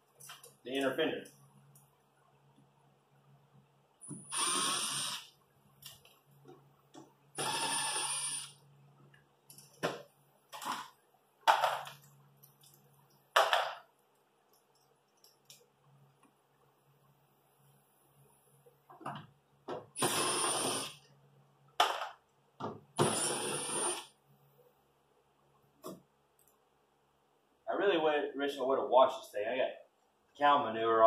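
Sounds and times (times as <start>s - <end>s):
cordless power tool whining: 4.1s - 5.3s, 7.4s - 8.6s.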